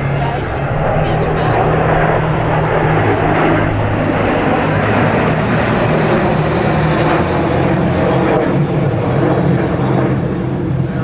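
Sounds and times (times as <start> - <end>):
jet engines overhead: 0.0 - 11.0.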